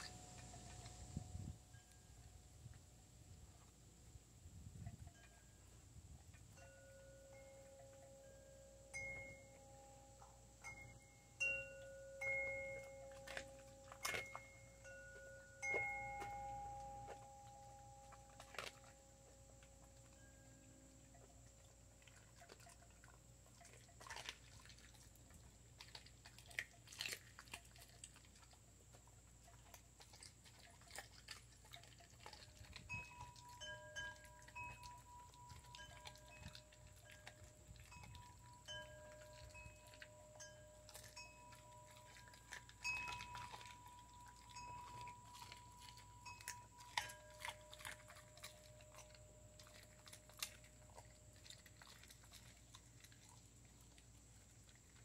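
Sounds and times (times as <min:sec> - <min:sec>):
dog chewing bones: 0:00.0 - 0:03.8, 0:05.6 - 0:55.0
held ringing tones: 0:06.5 - 0:22.0, 0:32.8 - 0:50.0.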